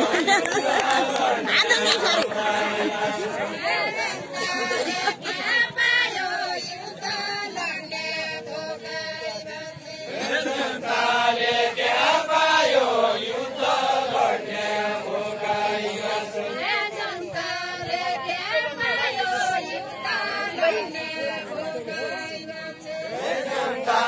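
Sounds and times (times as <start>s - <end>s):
group of voices chanting: 0.0s - 24.0s.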